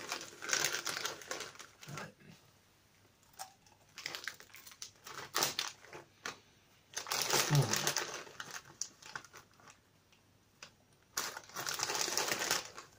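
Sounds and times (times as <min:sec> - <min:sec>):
crisp packet rustling: 0:00.0 - 0:02.0, 0:03.9 - 0:09.8, 0:11.1 - 0:12.9
popcorn being chewed: 0:03.2 - 0:06.0, 0:07.0 - 0:09.8.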